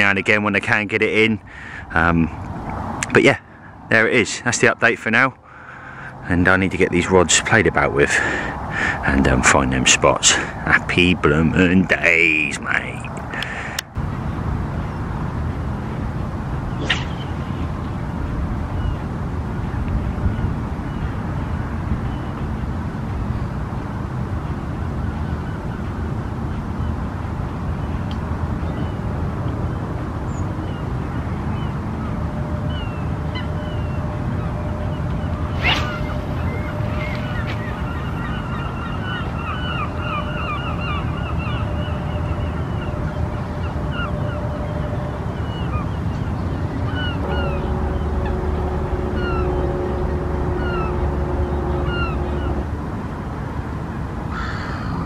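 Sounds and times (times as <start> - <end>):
wind rumble on microphone: 13.1 - 54.3
low background rumble: 34.4 - 40.0, 42.4 - 54.3
geese honking: 35.4 - 44.6, 45.5 - 53.1
faint short bird calls: 35.6 - 41.6.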